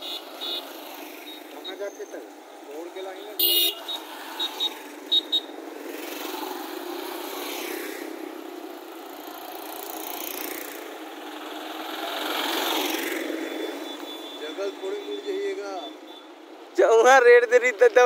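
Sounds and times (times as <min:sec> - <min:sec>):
car horn toots: 0:00.0 - 0:00.7, 0:03.4 - 0:04.0
motorcycles driving past: 0:00.0 - 0:15.4.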